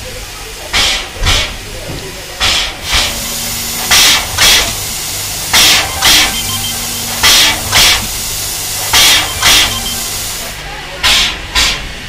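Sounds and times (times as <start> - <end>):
steam locomotive hisses: 0.0 - 12.0
steady low hum: 2.9 - 10.6.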